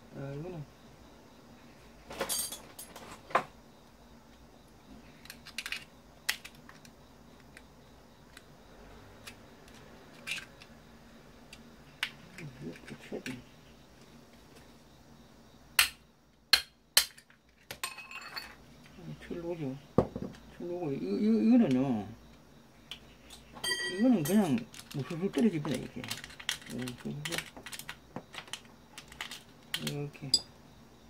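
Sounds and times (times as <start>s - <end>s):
plastic and metal parts handled: 5.2s - 6.9s, 24.3s - 30.0s
metal rod clinking: 23.6s - 24.6s.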